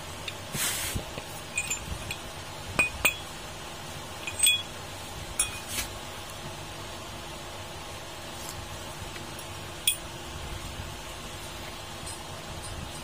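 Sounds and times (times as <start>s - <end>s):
metal parts clinking: 1.5s - 3.3s, 4.2s - 4.7s.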